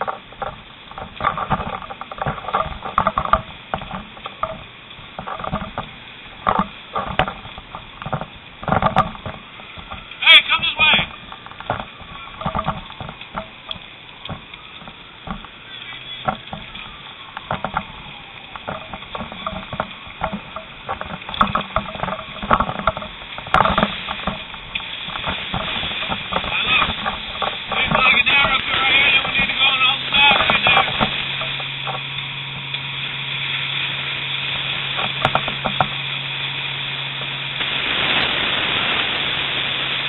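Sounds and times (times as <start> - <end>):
voices: 9.9 - 21.1, 25.2 - 32.0.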